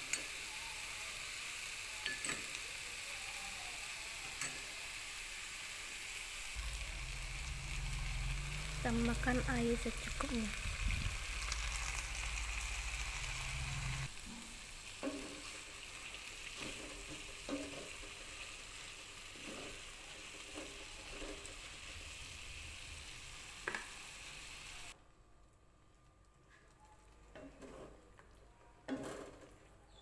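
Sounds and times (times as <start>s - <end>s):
vegetables sizzling in a pan: 0.0s - 25.0s
low hum: 6.6s - 14.1s
spatula scraping and knocking pan: 15.0s - 15.7s.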